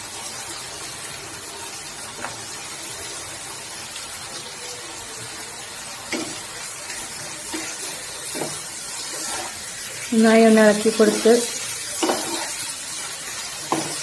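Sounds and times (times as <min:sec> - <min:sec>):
prawns sizzling in frying pan: 0:00.0 - 0:14.0
spatula knocking on pan: 0:13.7 - 0:14.0.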